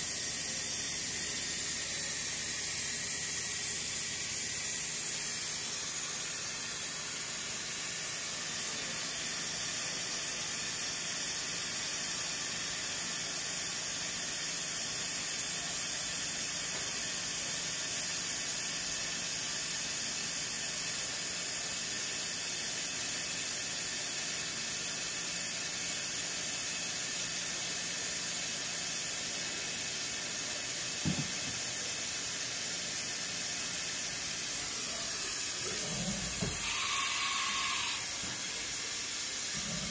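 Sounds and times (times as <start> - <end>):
milling machine hiss: 0.0 - 39.9.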